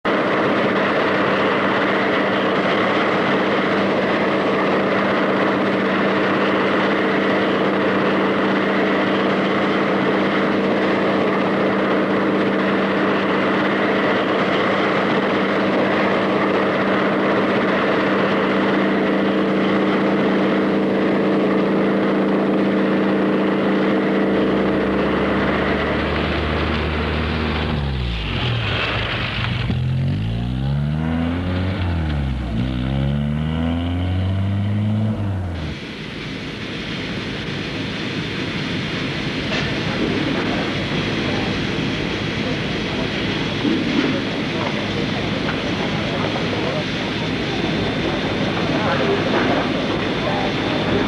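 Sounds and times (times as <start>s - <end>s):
aircraft engine drone: 0.0s - 51.0s.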